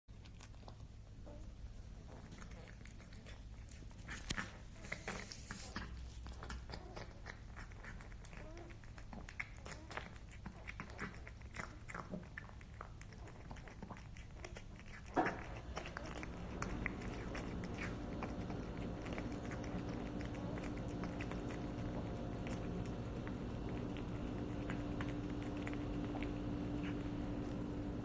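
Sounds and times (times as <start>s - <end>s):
steady low hum: 0.1s - 28.0s
cat chewing clicks: 2.2s - 27.7s.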